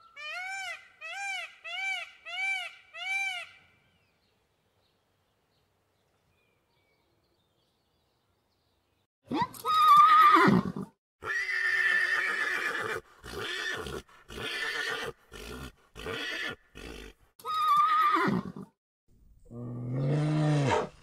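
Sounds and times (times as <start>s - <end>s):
horses whinnying: 9.8s - 18.7s.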